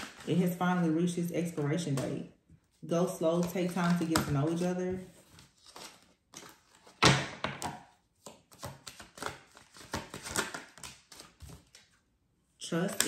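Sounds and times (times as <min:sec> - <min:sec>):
cards being shuffled: 0:03.3 - 0:07.0, 0:07.6 - 0:12.0.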